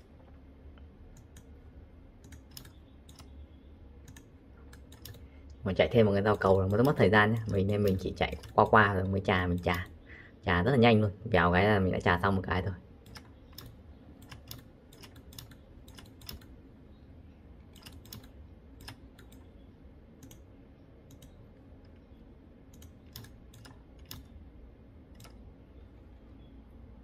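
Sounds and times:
low steady hum: 0.0 - 27.0
keyboard and mouse clicks: 0.2 - 1.6, 2.2 - 5.6, 6.6 - 8.7, 13.0 - 16.6, 17.6 - 24.4, 25.1 - 25.4.

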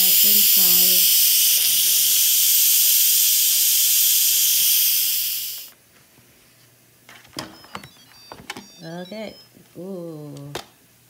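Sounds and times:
steam hissing from valve: 0.0 - 5.7.

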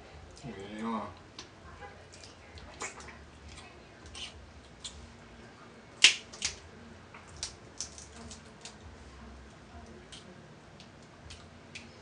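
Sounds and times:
crab shells cracking: 6.0 - 6.6, 7.3 - 8.8.

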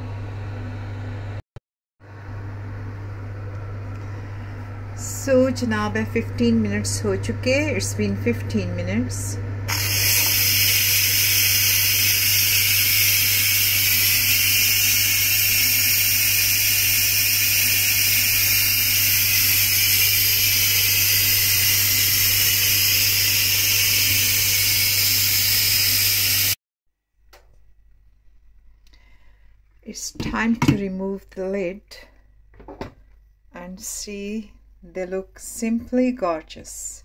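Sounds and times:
steam valve hissing: 9.7 - 26.6.

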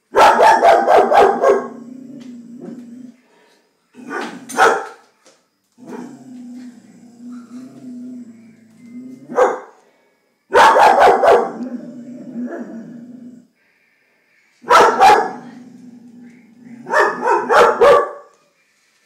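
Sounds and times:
dog barking: 0.1 - 1.8, 4.1 - 5.0, 9.3 - 9.8, 10.5 - 11.6, 14.6 - 15.5, 16.8 - 18.3.

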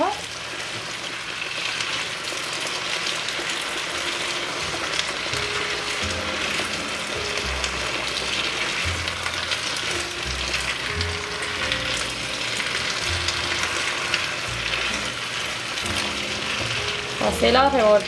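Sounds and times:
potatoes sizzling in butter: 0.0 - 18.0
spatula stirring in skillet: 5.9 - 17.3.

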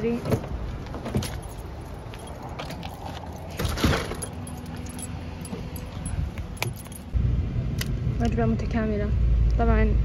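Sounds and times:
keys jingling: 1.0 - 7.2.

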